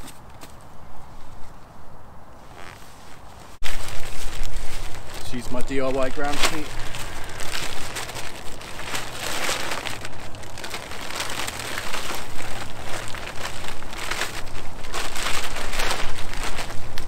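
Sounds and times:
plastic tarp crinkling: 3.5s - 17.0s.

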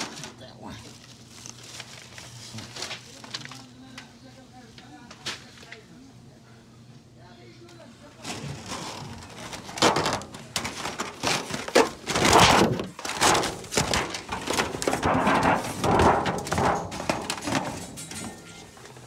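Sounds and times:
goods thunking and rustling on shelves: 8.2s - 19.0s.

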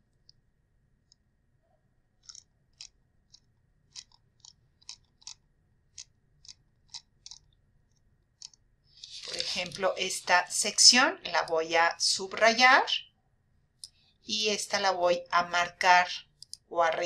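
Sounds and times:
computer mouse clicks: 2.2s - 9.8s.

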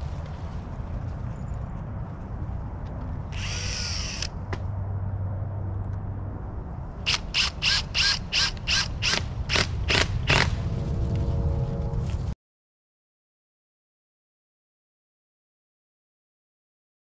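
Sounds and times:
cordless drill driving screws: 3.3s - 4.3s, 7.1s - 10.5s.

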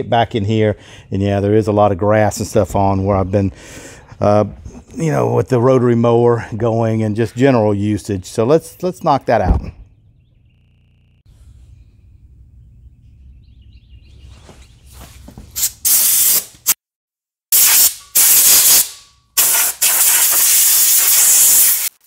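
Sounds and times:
compressed air blow gun bursts: 15.6s - 16.8s, 17.5s - 22.0s.

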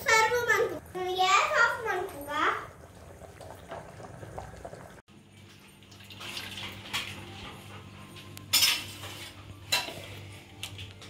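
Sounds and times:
steel kitchenware handled on stone: 8.5s - 10.2s.

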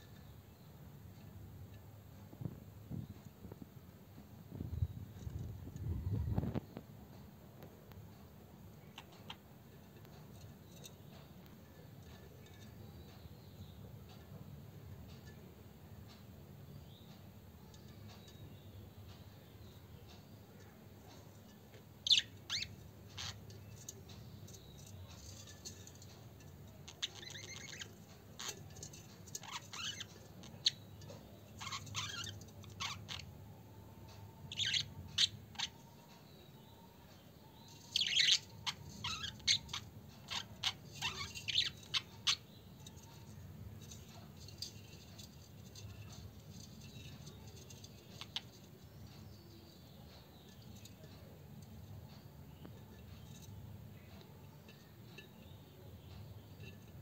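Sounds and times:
budgerigars chirping: 22.0s - 23.5s, 26.9s - 28.5s, 29.4s - 30.8s, 31.6s - 33.3s, 34.5s - 35.8s, 37.9s - 42.7s.

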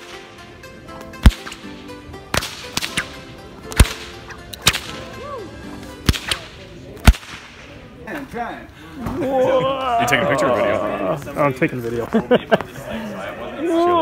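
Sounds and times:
bullwhip cracking: 1.2s - 5.1s, 6.0s - 7.7s.

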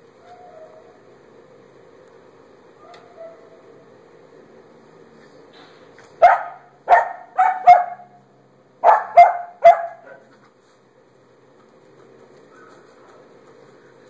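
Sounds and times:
puppy barking: 2.8s - 3.6s, 6.2s - 8.2s, 8.8s - 10.3s.

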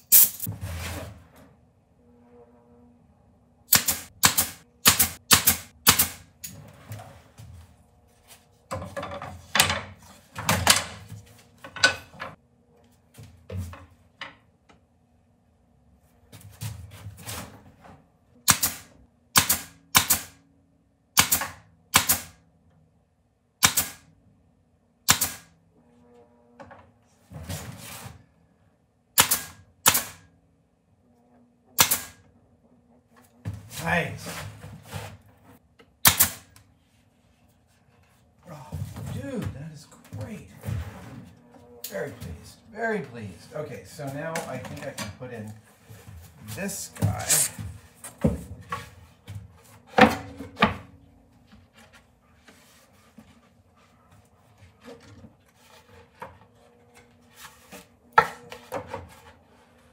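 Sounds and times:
nail gun shots: 3.7s - 6.3s, 18.4s - 20.4s, 21.2s - 22.4s, 23.6s - 24.1s, 25.1s - 25.5s, 29.2s - 30.2s, 31.8s - 32.2s, 36.0s - 36.6s.

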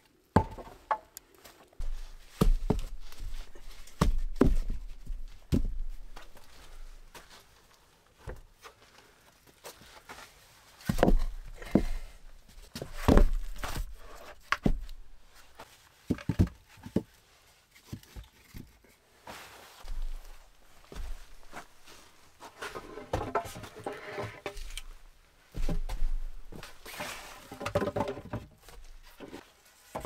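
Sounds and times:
logs knocking on wooden floor: 0.4s - 1.0s, 10.9s - 12.0s, 12.8s - 13.8s, 16.1s - 17.1s, 22.8s - 24.6s, 27.5s - 28.5s
footsteps: 19.3s - 24.8s.

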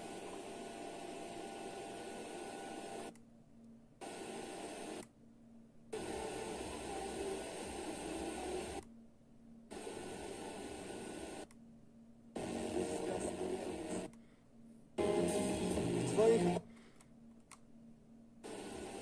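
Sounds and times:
radio static hiss: 4.0s - 5.0s, 6.0s - 8.8s, 9.7s - 11.4s, 12.4s - 14.1s, 15.0s - 16.7s, 18.4s - 19.0s
faint radio programme: 5.9s - 9.0s, 12.4s - 14.2s, 15.0s - 16.8s.

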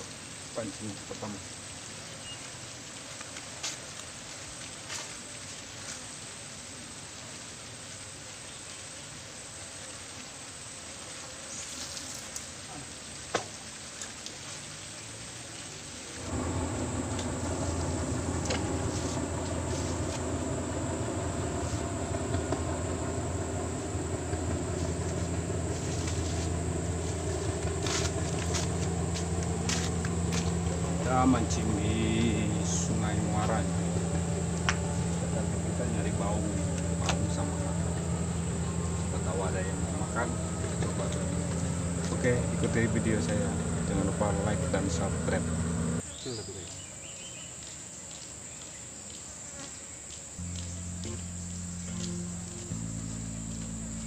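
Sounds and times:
outdoor hiss: 0.0s - 47.5s, 50.4s - 54.0s
steady low rumble: 16.2s - 46.0s, 50.4s - 54.0s.

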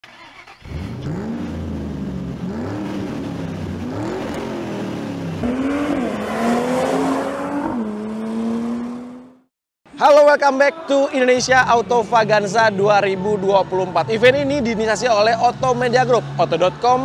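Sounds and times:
car engine accelerating: 0.1s - 9.5s.

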